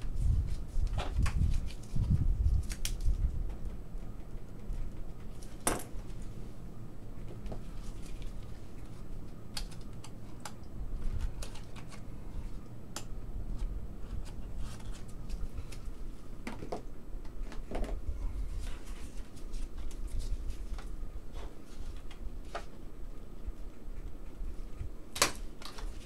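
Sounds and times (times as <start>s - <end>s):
cards clicking and tapping: 9.4s - 12.1s.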